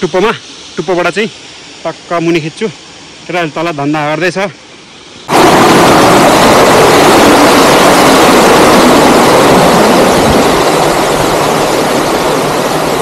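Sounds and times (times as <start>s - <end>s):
waterfall rushing over rocks: 5.1s - 13.0s.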